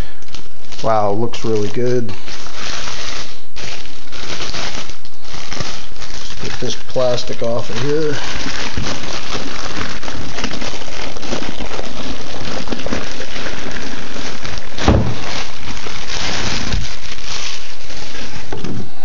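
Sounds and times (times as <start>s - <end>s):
plastic bag crinkling: 0.0s - 19.0s
heavy thump: 14.8s - 15.2s.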